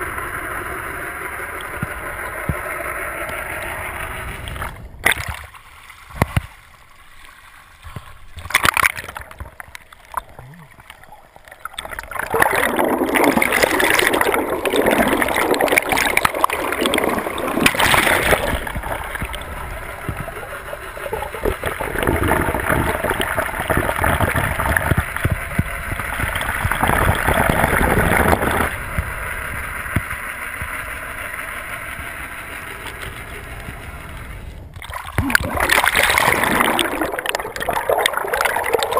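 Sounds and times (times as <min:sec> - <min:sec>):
water rushing and gurgling: 0:00.0 - 0:38.9
knocks and splashes: 0:05.0 - 0:06.6, 0:07.8 - 0:10.5, 0:11.7 - 0:20.4, 0:34.8 - 0:38.9.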